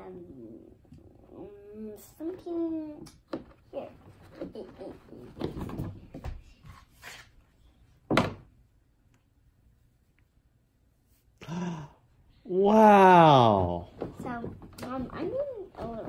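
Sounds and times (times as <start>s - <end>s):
puppet thumping onto counter: 8.1s - 8.5s
puppet rustling against plastic: 14.0s - 16.0s.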